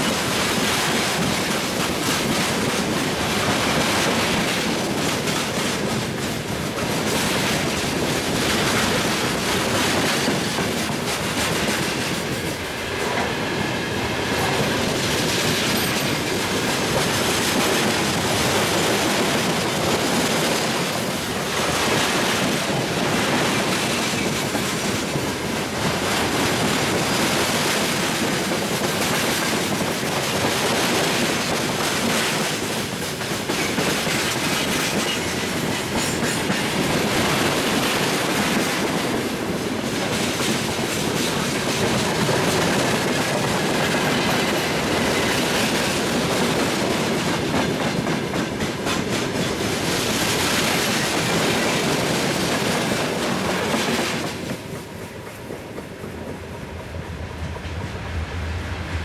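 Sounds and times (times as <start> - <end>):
freight train rolling past: 0.0 - 59.0
wheels clacking over rail joints: 14.4 - 56.5.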